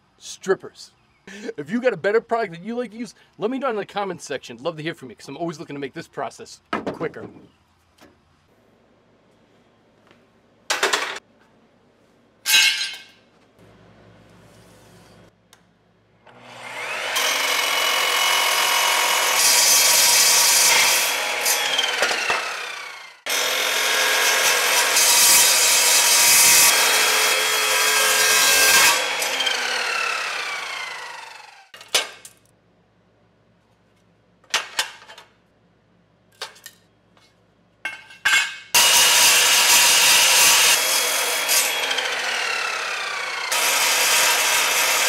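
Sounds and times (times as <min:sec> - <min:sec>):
miter saw cutting steel pipe: 0:16.3 - 0:31.7, 0:38.8 - 0:45.0.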